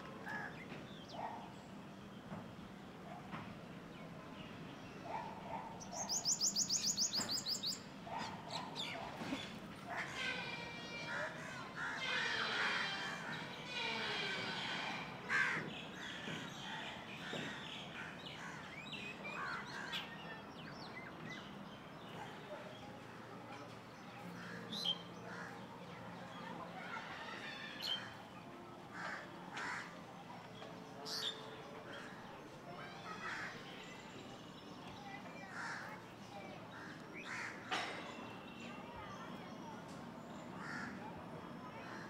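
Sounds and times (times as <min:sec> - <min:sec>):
birds chirping: 0:04.5 - 0:09.6.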